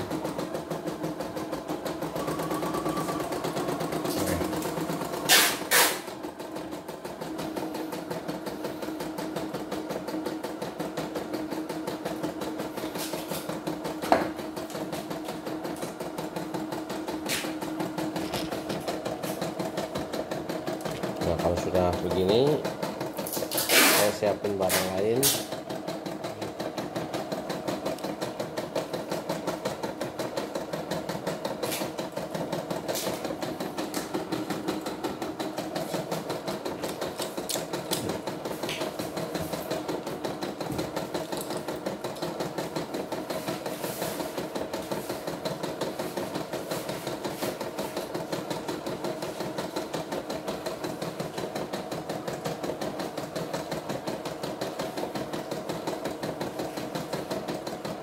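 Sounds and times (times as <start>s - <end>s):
embroidery machine stitching: 0.0s - 58.0s
sharp machine click: 5.2s - 6.1s, 23.4s - 25.5s.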